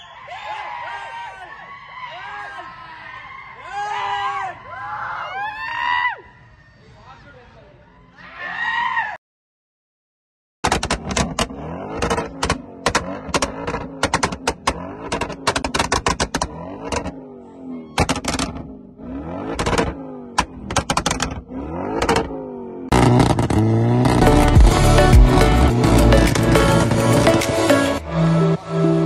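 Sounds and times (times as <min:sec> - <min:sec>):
exhaust pops and crackles: 0:10.6 - 0:17.2, 0:18.0 - 0:18.7, 0:19.4 - 0:22.3, 0:22.9 - 0:25.4
car engine revving: 0:10.6 - 0:29.0.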